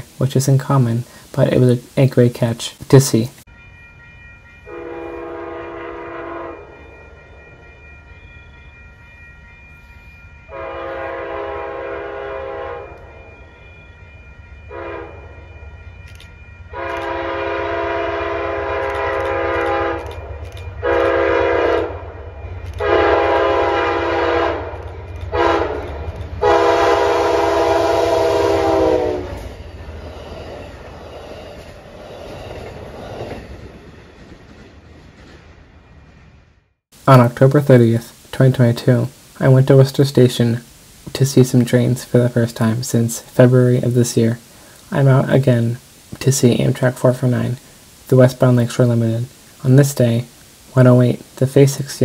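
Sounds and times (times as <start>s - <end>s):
train rumble: 0.0s - 52.0s
locomotive air horn blasts: 4.7s - 6.8s, 10.5s - 13.1s, 14.7s - 15.2s, 16.7s - 20.2s, 20.8s - 22.1s, 22.8s - 29.5s.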